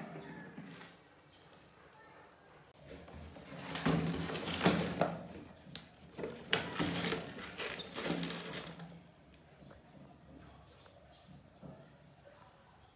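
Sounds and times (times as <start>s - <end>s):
mice scratching in plastic jar: 6.1s - 9.0s.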